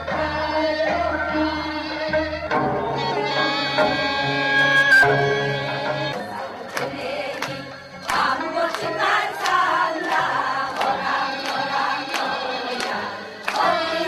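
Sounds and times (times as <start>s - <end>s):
women singing folk song: 5.5s - 14.0s.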